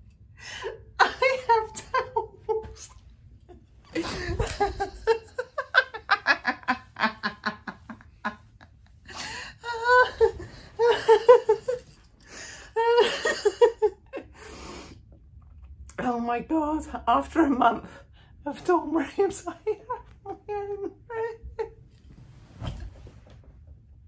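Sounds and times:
woman laughing: 0:01.0 - 0:12.0, 0:12.8 - 0:14.3, 0:19.2 - 0:21.8.

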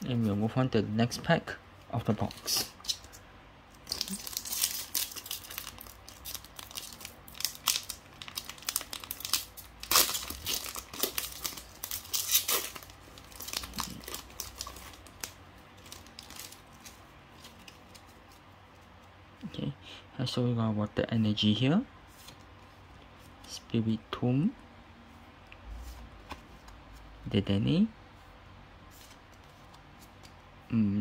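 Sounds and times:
foil wrapper crinkling: 0:03.8 - 0:18.2.

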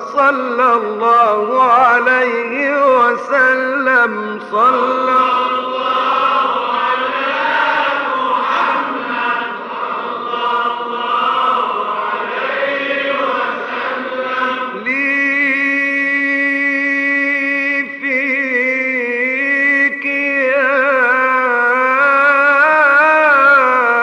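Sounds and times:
solo man chanting: 0:00.0 - 0:24.0
group of men chanting: 0:04.6 - 0:15.8.

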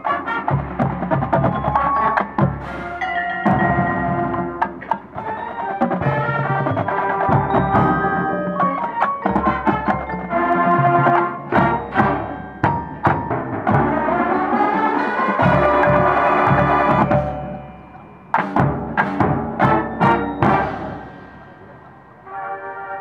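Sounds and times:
marching band playing: 0:00.0 - 0:23.0
sharp drum and mallet strikes: 0:00.6 - 0:05.3, 0:11.1 - 0:14.2, 0:15.4 - 0:21.9.

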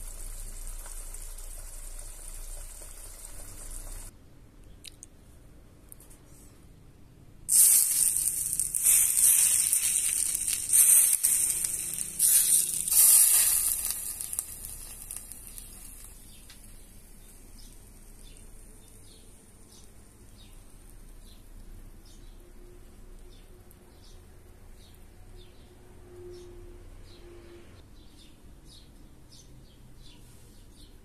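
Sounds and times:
loud hiss: 0:07.5 - 0:16.3.

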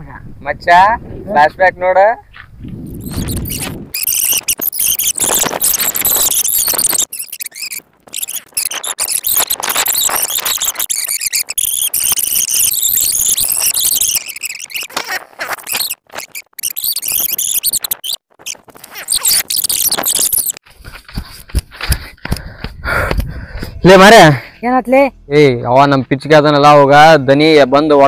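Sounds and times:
high-pitched warbling squeal: 0:02.8 - 0:20.6.

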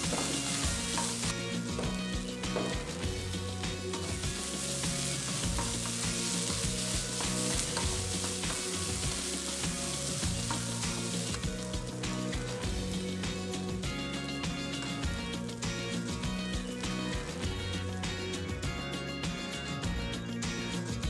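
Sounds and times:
vegetables sizzling in oil: 0:00.0 - 0:17.9
wooden spatula scraping a pan: 0:04.0 - 0:11.4.

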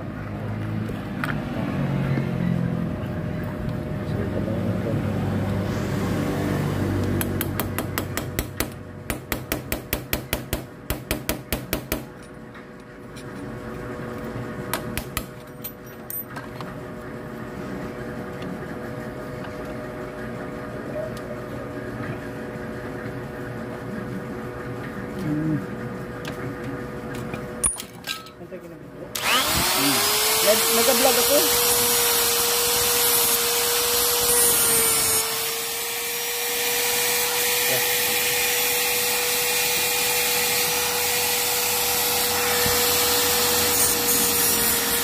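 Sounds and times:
hammer tapping on metal: 0:07.2 - 0:12.1.

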